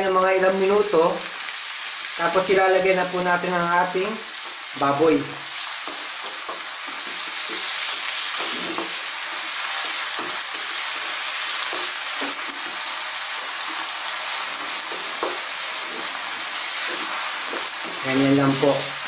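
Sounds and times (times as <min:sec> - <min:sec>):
vegetables sizzling in oil: 0:00.0 - 0:19.0
spatula scraping and knocking wok: 0:05.6 - 0:18.7.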